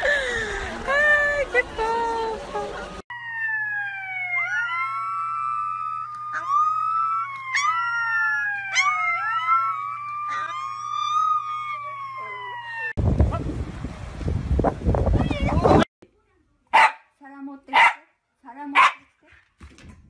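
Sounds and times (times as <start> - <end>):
puppy howling: 3.3 - 13.0
puppy yelps: 4.3 - 11.9.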